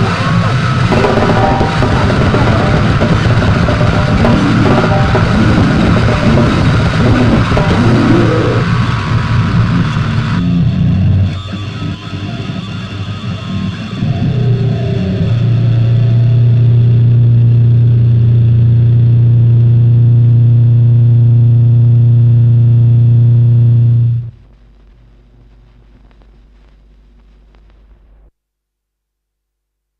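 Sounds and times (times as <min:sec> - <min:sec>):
harsh noise music drone: 0:00.0 - 0:28.2
stylus crackle and clicks: 0:24.4 - 0:28.3.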